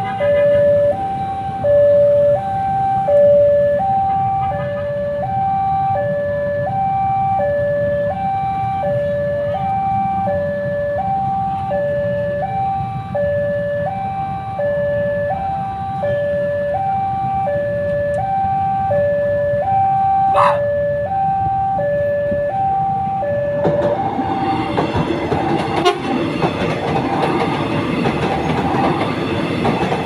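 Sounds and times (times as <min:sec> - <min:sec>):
level crossing two-tone alarm: 0:00.0 - 0:25.0.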